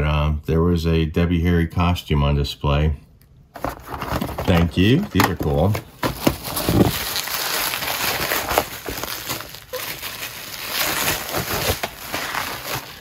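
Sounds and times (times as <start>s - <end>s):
bubble wrap crinkling: 3.6s - 13.0s.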